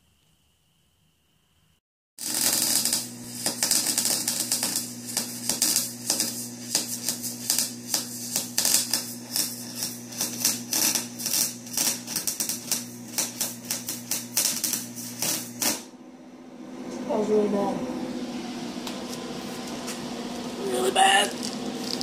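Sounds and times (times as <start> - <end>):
welder arc crackling: 2.2 - 15.9, 18.8 - 22.0
low electrical hum: 2.4 - 22.0.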